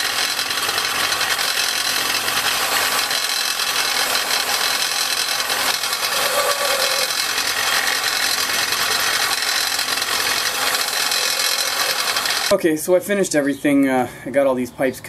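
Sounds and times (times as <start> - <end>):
belt sander grinding pipe: 0.0 - 12.6.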